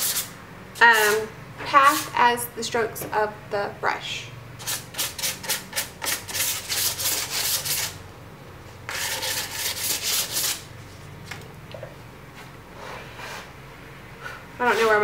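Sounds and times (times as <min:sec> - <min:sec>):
sandpaper rubbing on wood: 0:00.9 - 0:01.2, 0:04.6 - 0:08.0, 0:08.9 - 0:10.6.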